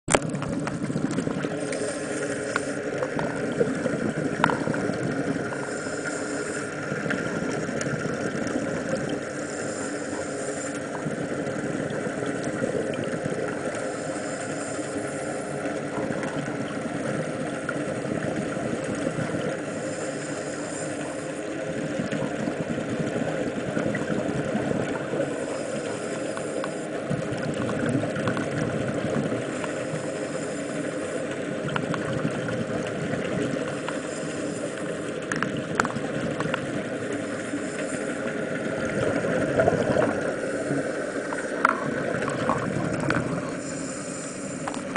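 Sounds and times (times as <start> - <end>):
underwater rumble: 0.1 - 44.9
regulator breath hiss: 1.6 - 3.0, 5.4 - 7.0, 9.2 - 11.0, 13.8 - 15.8, 19.6 - 21.7, 25.2 - 27.1, 29.5 - 31.4, 33.7 - 35.3, 37.0 - 38.6, 40.2 - 41.7, 43.4 - 44.9.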